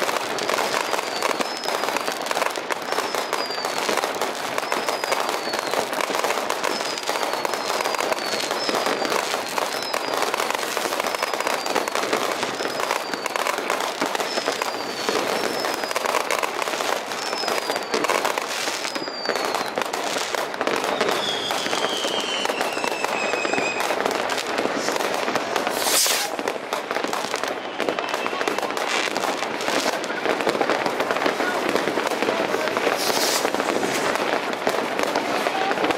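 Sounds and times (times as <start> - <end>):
falling firework whistles: 0.0 - 30.4, 31.9 - 35.9
fireworks crackling and banging: 0.0 - 35.9
long descending whistle: 20.9 - 23.9
sharp firework bang: 24.7 - 26.4, 32.3 - 34.1.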